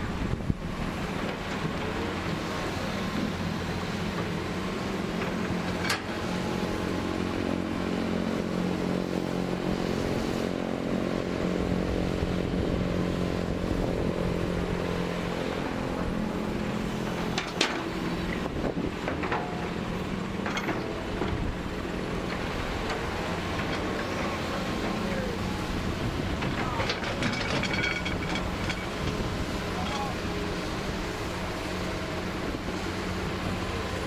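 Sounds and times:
excavator diesel engine: 0:00.0 - 0:34.0
bucket clanking on rock: 0:26.4 - 0:29.2.

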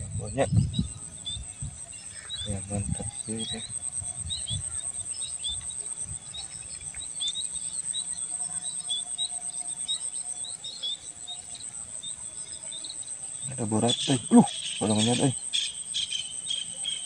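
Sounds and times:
cricket-like trill: 0:00.0 - 0:17.0
small bird chirping: 0:00.0 - 0:17.0.

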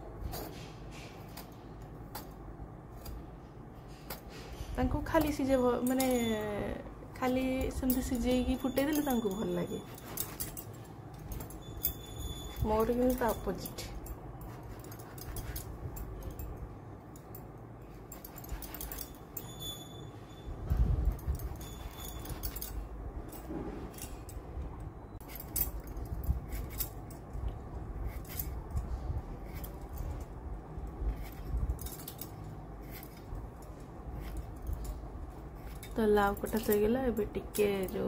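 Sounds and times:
high clinks: 0:04.1 - 0:24.5.

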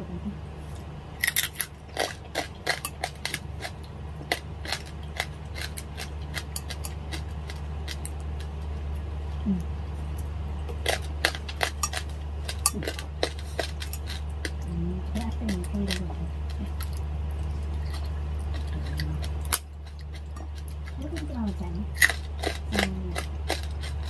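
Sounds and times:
crunchy pork being chewed: 0:00.6 - 0:24.0.

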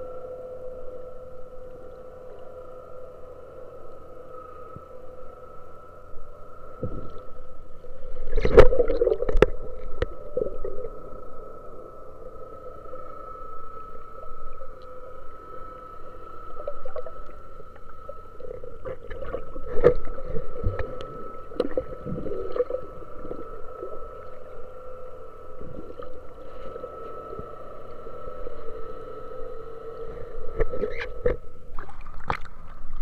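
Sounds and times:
underwater boat engine drone: 0:00.0 - 0:33.0
underwater clicks and bubbling: 0:08.1 - 0:11.3, 0:16.4 - 0:24.5, 0:30.5 - 0:33.0.

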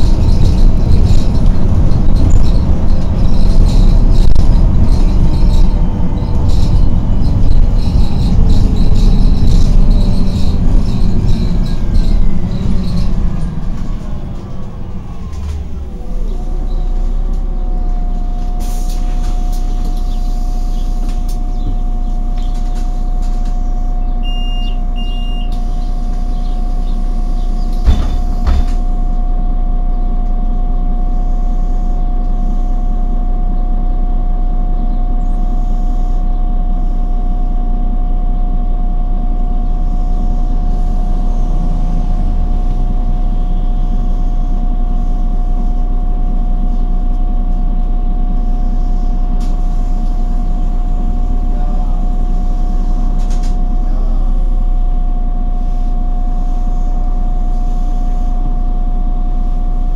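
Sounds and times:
bus drivetrain whine: 0:00.0 - 0:59.9
bus engine idling: 0:00.0 - 0:59.9
short beeps: 0:24.2 - 0:25.6
thumps: 0:27.8 - 0:28.8.

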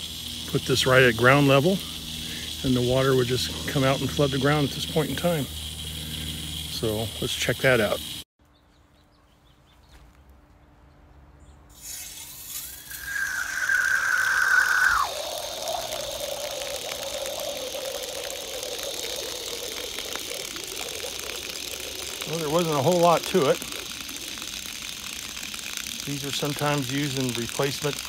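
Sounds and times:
high squeal in water pipe: 0:11.8 - 0:28.0
water splashing onto ground: 0:12.4 - 0:28.0.

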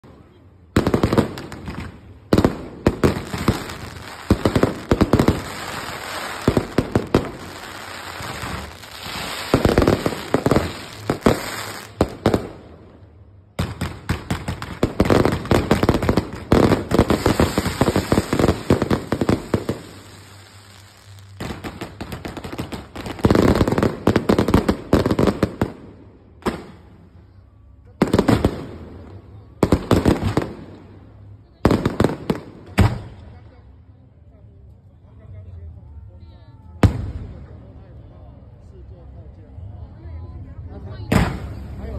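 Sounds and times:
fireworks bangs and crackles: 0:00.0 - 0:27.1, 0:28.0 - 0:33.4, 0:36.8 - 0:37.8, 0:41.1 - 0:41.9.

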